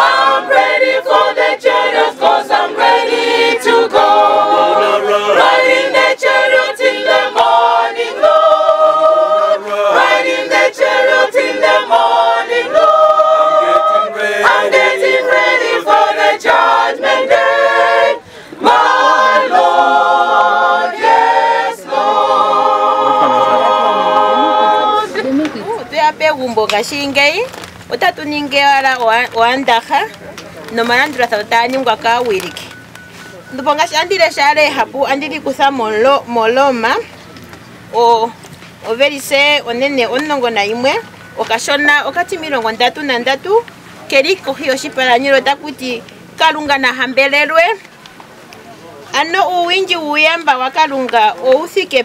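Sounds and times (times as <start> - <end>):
choir singing in harmony: 0.0 - 25.4.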